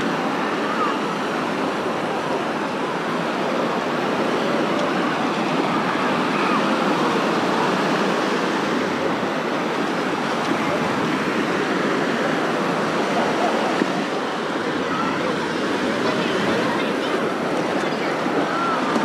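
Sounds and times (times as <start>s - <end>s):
babble of many voices: 0.0s - 19.0s
small waves washing on sand: 0.0s - 19.0s.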